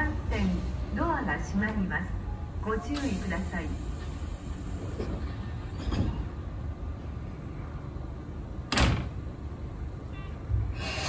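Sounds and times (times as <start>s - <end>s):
steady background hum: 0.0s - 11.0s
train doors closing thud: 8.6s - 9.3s.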